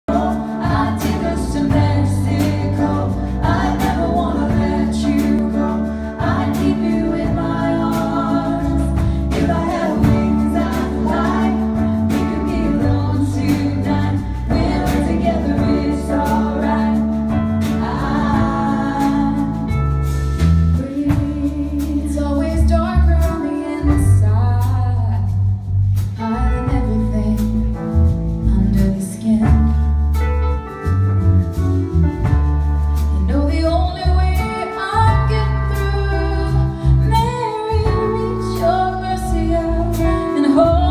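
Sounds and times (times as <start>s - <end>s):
woman singing: 0.0s - 17.1s, 20.8s - 25.3s, 26.2s - 27.8s, 28.5s - 29.8s, 33.2s - 40.9s
drums: 0.0s - 40.9s
low bass line: 0.0s - 40.9s.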